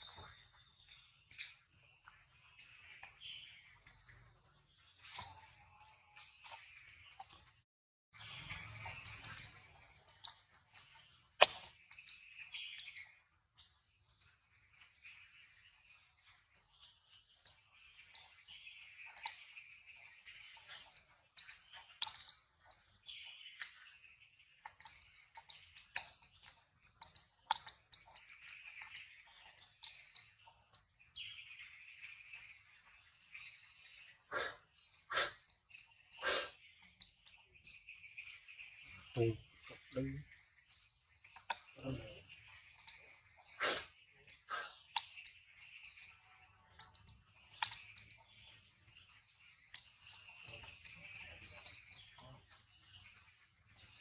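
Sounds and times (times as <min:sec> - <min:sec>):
monkey grooming clicks and smacks: 0:08.5 - 0:13.2, 0:17.4 - 0:19.5, 0:20.4 - 0:23.8, 0:24.6 - 0:31.0, 0:41.3 - 0:46.1, 0:46.7 - 0:48.4, 0:49.7 - 0:52.7
sharp clicks: 0:24.6 - 0:30.9, 0:41.3 - 0:46.1, 0:46.7 - 0:48.3.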